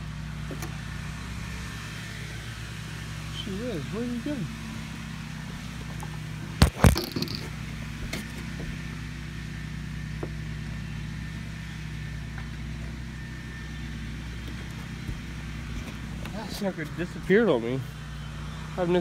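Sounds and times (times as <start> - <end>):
low motor hum: 0.0 - 19.0.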